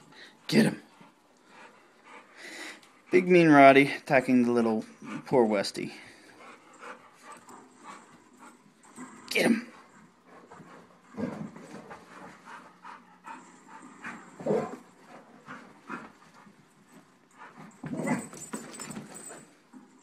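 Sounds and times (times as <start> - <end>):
dog panting: 0.0 - 19.5
dogs playing outbursts: 12.6 - 16.3, 17.4 - 19.4.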